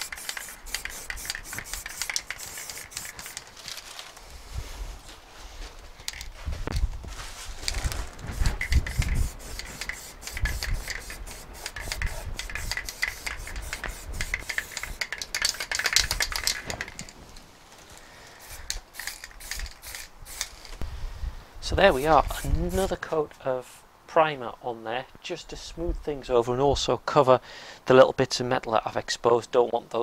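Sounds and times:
hiss: 0.0 - 3.5, 8.3 - 16.7, 18.0 - 20.8.

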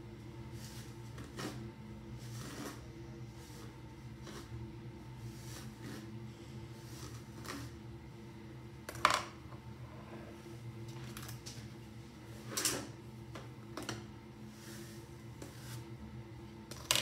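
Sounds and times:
steady low hum: 0.0 - 17.0
hairbrush strokes through hair: 5.2 - 7.6.

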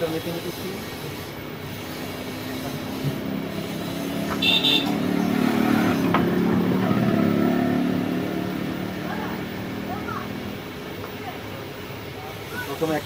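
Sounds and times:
low motor drone: 1.5 - 10.9.

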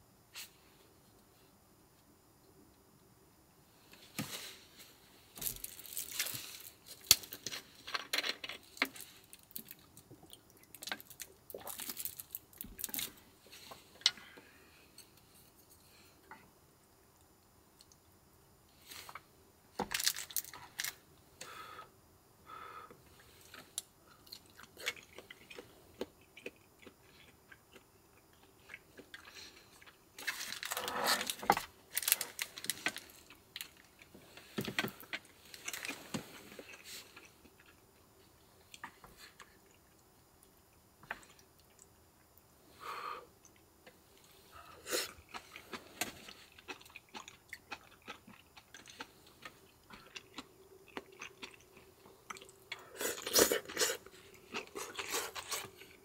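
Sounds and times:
crunchy rustling: 3.9 - 9.9, 10.7 - 14.0, 29.3 - 37.8
clicks and clatters of handling: 5.4 - 9.6.

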